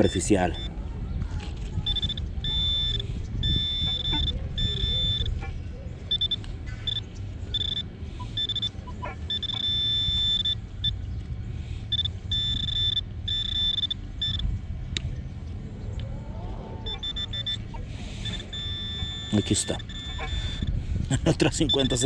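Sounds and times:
metal detector beeping: 0:00.0 - 0:00.7, 0:01.8 - 0:05.4, 0:06.1 - 0:11.0, 0:11.9 - 0:14.5, 0:16.9 - 0:20.7, 0:21.5 - 0:22.0
low rumble: 0:10.6 - 0:19.2.

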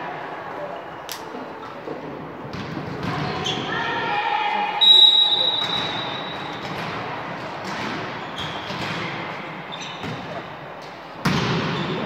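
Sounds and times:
volleyball struck hard: 0:11.2 - 0:11.8.

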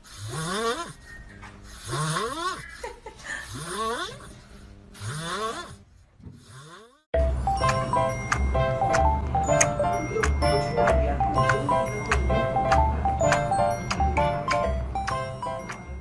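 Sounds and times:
background music: 0:07.2 - 0:16.0.

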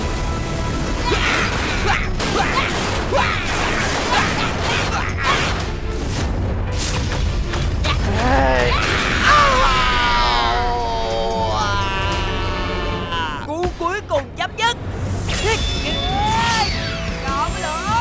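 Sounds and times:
pitch-bending vocal cry: 0:08.0 - 0:13.5.

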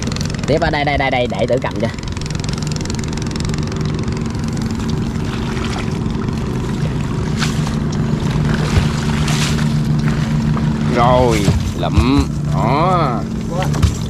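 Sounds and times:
small boat engine droning: 0:00.0 - 0:14.0
knocks in boat: 0:07.2 - 0:14.0.

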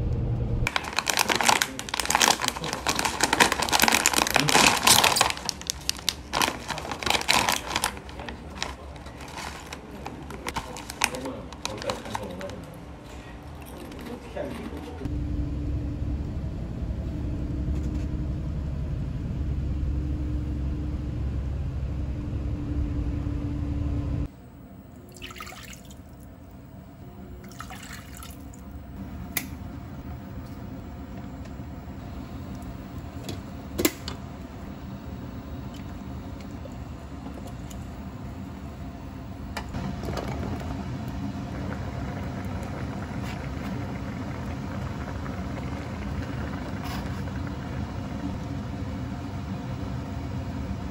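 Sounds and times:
vehicle rumble from inside cabin: 0:15.0 - 0:24.3.

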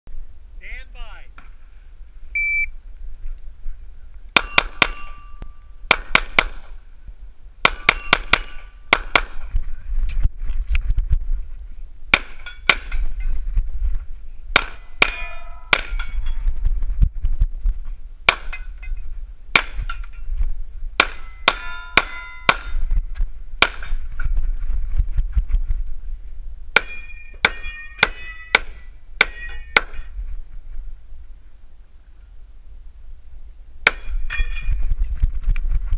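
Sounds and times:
steel targets ringing: 0:04.4 - 0:06.7, 0:07.6 - 0:09.5, 0:14.6 - 0:16.4, 0:21.0 - 0:22.9, 0:26.8 - 0:30.1, 0:33.8 - 0:34.7.

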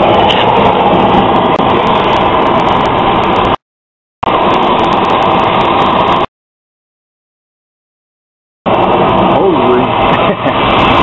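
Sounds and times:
torch flame hissing: 0:00.0 - 0:03.6, 0:04.2 - 0:06.3, 0:08.7 - 0:11.0.

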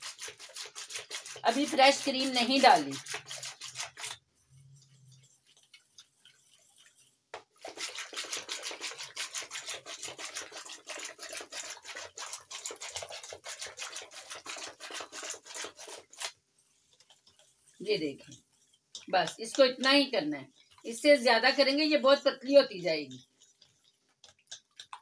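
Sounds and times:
whisk scraping steel bowl: 0:00.0 - 0:25.0.

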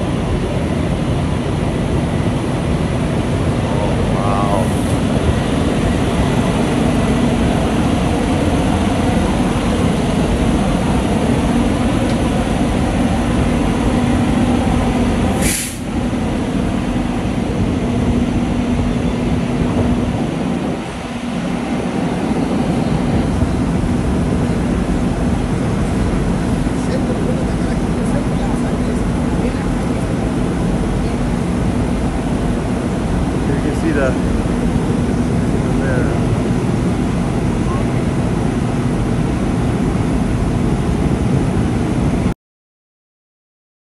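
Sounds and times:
diesel engines running: 0:00.0 - 0:42.2
brief hiss: 0:15.4 - 0:15.9.

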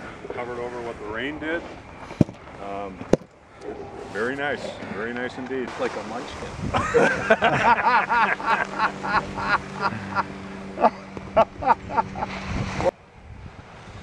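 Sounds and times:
steady low hum: 0:00.0 - 0:14.0
person laughing: 0:06.7 - 0:12.3.

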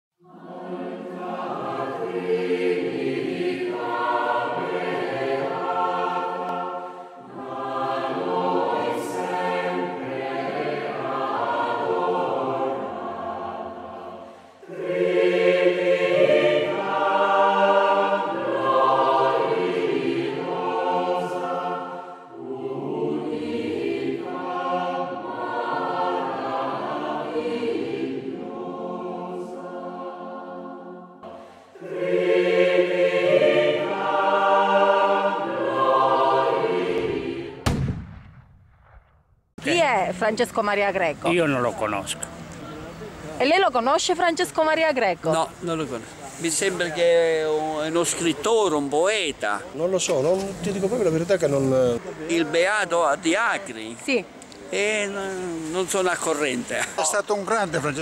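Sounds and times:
choir singing: 0:00.2 - 0:37.6.

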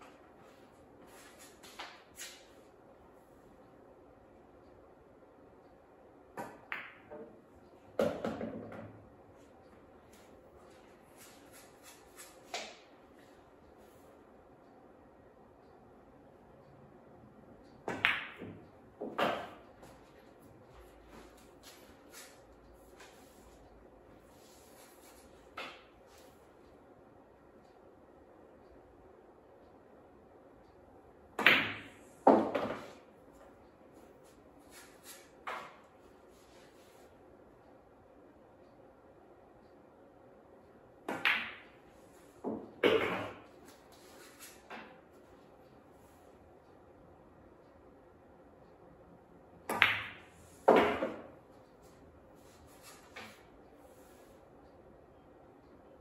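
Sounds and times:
pool balls knocking: 0:08.0 - 0:09.0, 0:17.9 - 0:19.6, 0:31.4 - 0:33.0, 0:42.4 - 0:43.5, 0:49.7 - 0:51.3
light clicks of pool balls: 0:17.6 - 0:26.8, 0:31.6 - 0:37.3, 0:49.7 - 0:54.8
balls rolling knocks: 0:42.4 - 0:43.5.

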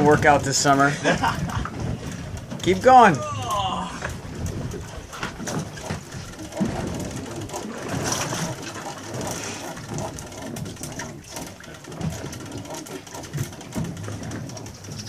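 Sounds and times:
wind buffeting microphone: 0:00.0 - 0:09.3
sea water hissing around boat: 0:06.0 - 0:11.9.

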